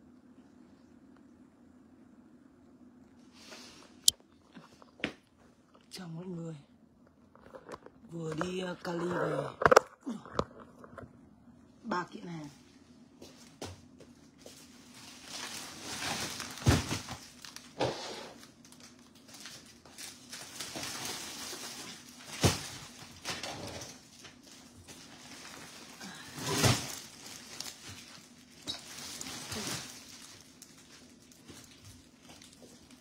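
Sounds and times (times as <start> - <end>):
plastic film rustling: 14.2 - 33.0.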